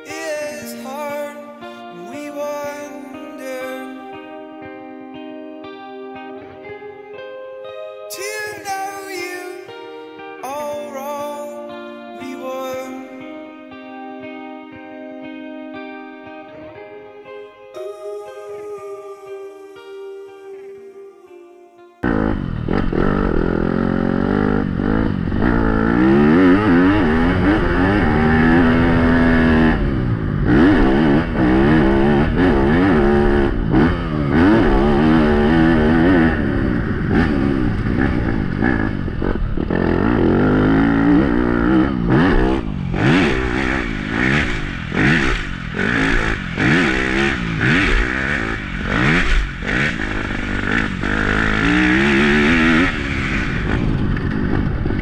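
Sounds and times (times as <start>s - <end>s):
motocross bike engine revving: 22.0s - 55.0s.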